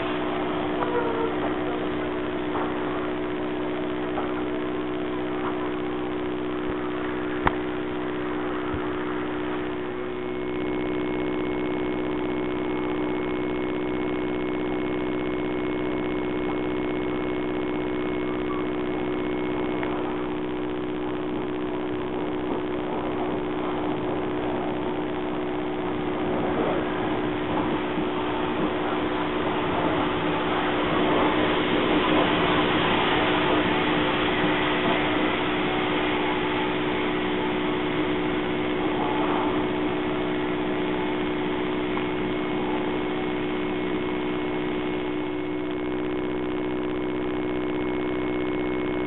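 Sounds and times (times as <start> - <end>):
steam hissing: 0.0 - 10.1, 22.5 - 45.0
steady hum: 0.0 - 49.0.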